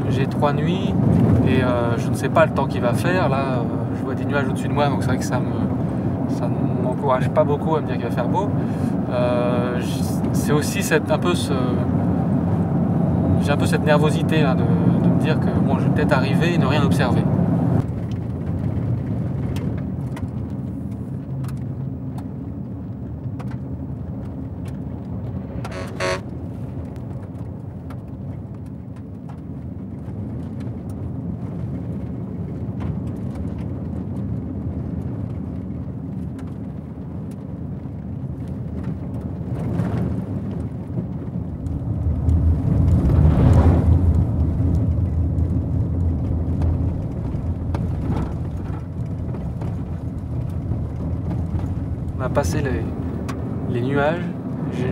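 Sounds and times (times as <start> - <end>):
car engine and road rumble: 0.0 - 54.9
short high tone: 25.6 - 26.3.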